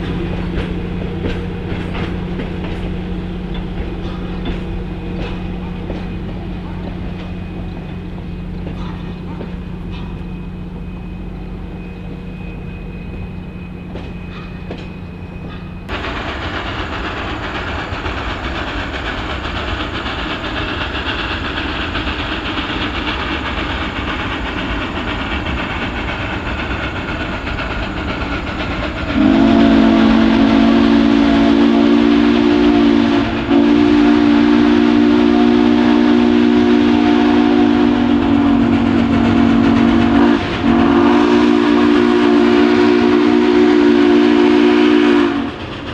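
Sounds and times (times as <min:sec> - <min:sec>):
steam locomotive whistle: 0:29.1 - 0:45.7.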